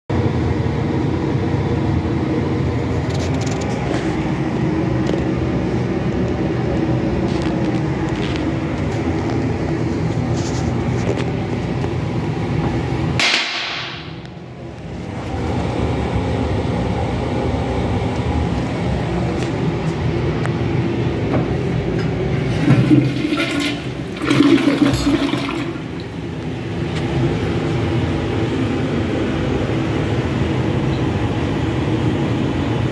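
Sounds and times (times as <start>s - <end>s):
toilet flushing and refilling: 22.0s - 26.9s.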